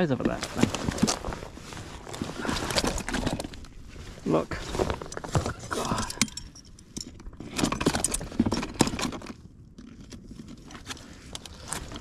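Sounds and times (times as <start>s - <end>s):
fish and tackle clicks and knocks: 5.1s - 12.0s.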